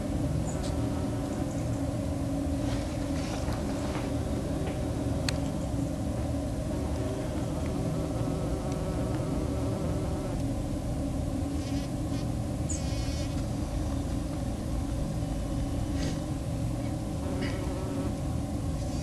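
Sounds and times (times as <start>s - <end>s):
bumblebee buzzing: 0.0s - 2.0s, 6.7s - 10.6s, 11.5s - 13.4s, 17.1s - 19.0s.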